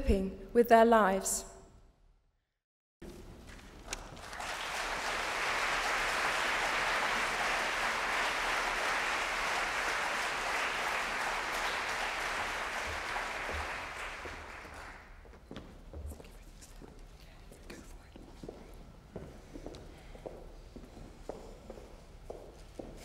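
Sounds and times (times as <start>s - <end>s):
audience applauding: 3.9s - 15.2s.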